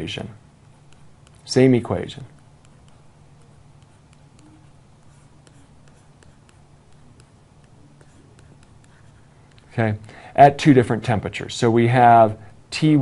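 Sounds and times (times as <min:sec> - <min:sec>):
low steady hum: 0:00.0 - 0:13.0.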